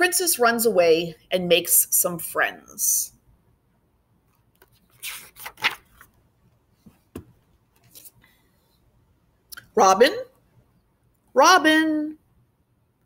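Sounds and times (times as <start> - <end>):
book pages rustling: 4.3 - 8.3
faint book handling: 4.4 - 8.4
light tap on book: 6.9 - 7.4.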